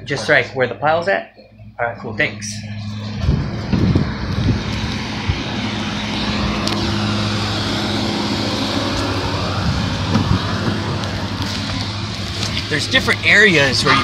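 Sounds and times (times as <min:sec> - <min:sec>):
vehicle engine humming: 0:00.0 - 0:14.0
tyre and wind noise: 0:02.8 - 0:07.1, 0:08.7 - 0:14.0.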